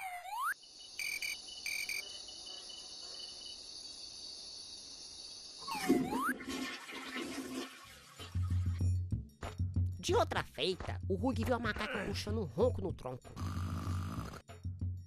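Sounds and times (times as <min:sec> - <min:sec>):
crickets chirring: 0:00.3 - 0:06.4.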